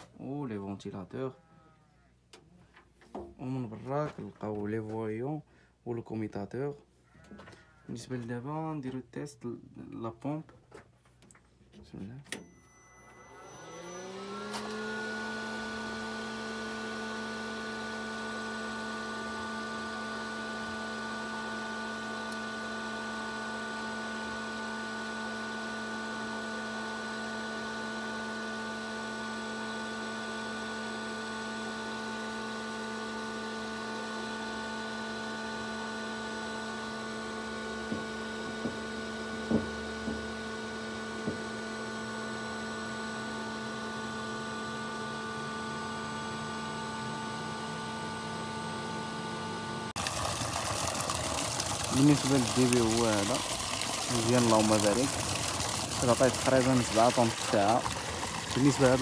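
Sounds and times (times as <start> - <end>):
electrical hum and whine: 2.1 - 59.0
cooling fan running: 13.3 - 26.4, 32.9 - 59.0.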